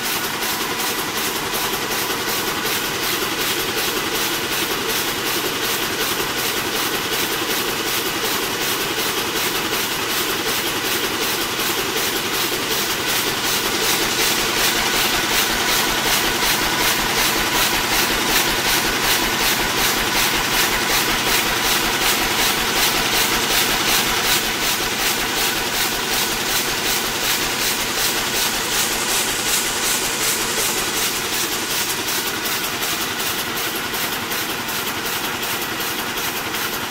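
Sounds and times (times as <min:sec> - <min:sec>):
loom clattering: 0:11.9 - 0:36.9.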